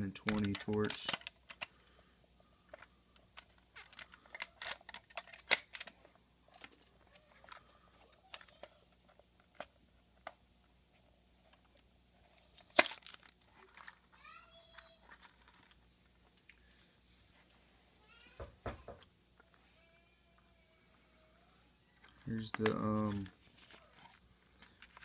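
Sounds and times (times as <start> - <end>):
plastic case clicking and crackling: 0.0 - 1.8, 2.7 - 7.7, 12.6 - 14.1, 14.7 - 16.5, 22.0 - 25.0.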